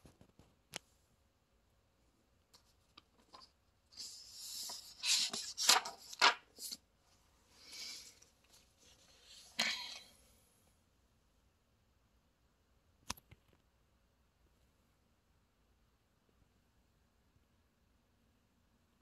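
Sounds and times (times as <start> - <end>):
paper page rustling: 2.6 - 6.8
paper crackles: 2.9 - 6.8.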